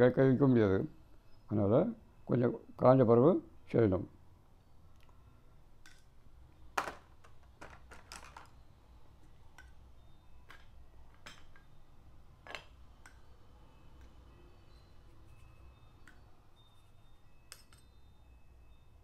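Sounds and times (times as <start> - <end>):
faint low hum: 0.0 - 19.0
tools and jars clicking on table: 5.8 - 6.1, 6.8 - 8.6, 9.5 - 11.8, 12.4 - 14.2, 17.5 - 18.0.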